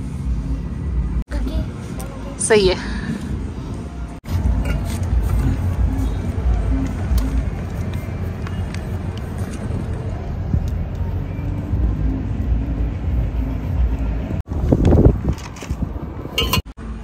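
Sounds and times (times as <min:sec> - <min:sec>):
wind buffeting microphone: 0:03.2 - 0:16.6.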